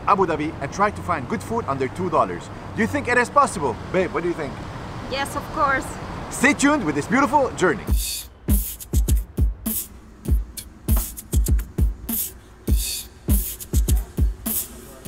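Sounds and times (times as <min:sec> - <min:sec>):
deep kick drums dropping in pitch: 0:07.9 - 0:14.6.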